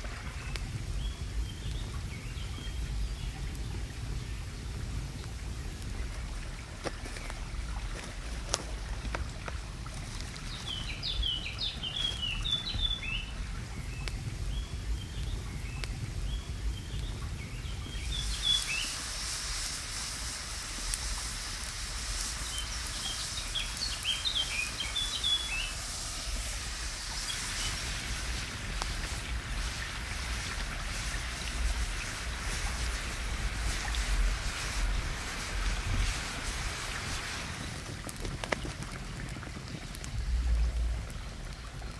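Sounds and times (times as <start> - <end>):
wood fire crackling: 0.0 - 41.9
songbird chirping: 10.6 - 19.0
pan sizzling: 18.0 - 38.0.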